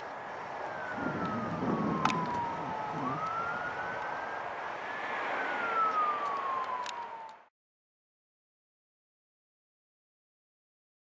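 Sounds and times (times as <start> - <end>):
emergency vehicle siren wailing: 0.0 - 7.5.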